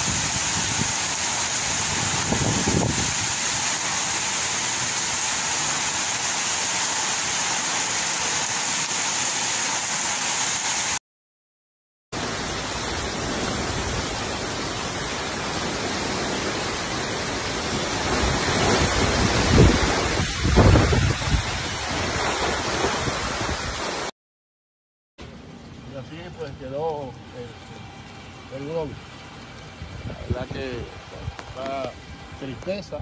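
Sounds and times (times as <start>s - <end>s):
fast floodwater rushing: 0.0s - 11.0s, 12.2s - 24.1s
heavy rain pouring: 0.0s - 11.0s, 12.2s - 24.1s, 25.3s - 33.0s.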